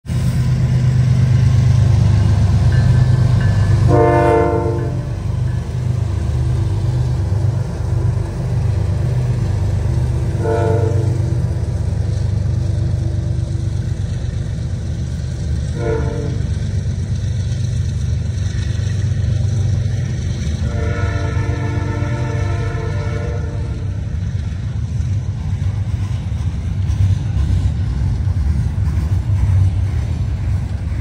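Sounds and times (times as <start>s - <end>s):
train engine rumble: 0.0s - 31.0s
train air horn chord: 3.8s - 5.3s, 10.3s - 11.3s, 15.7s - 16.5s, 20.6s - 24.0s.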